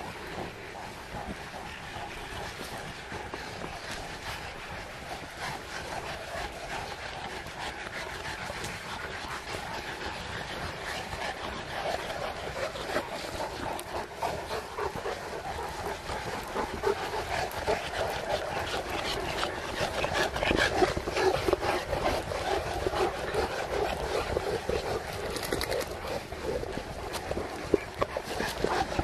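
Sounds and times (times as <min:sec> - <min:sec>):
pack of dogs: 0:00.0 - 0:29.0.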